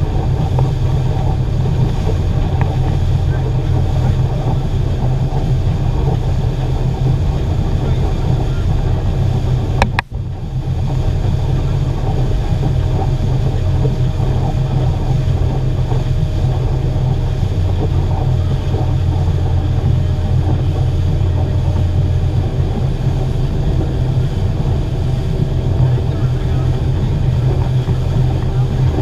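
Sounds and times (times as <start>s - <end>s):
outboard motor running: 0.0s - 29.0s
wake water rushing: 0.0s - 29.0s.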